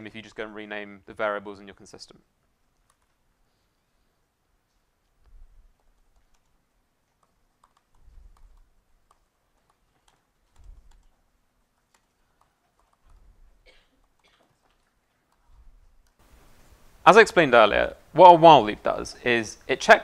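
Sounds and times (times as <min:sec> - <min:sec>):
keyboard typing: 0:02.7 - 0:03.2, 0:05.2 - 0:16.2.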